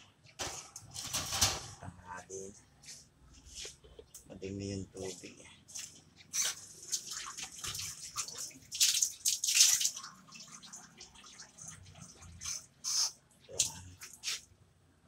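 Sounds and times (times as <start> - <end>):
water splashing: 5.0 - 14.4.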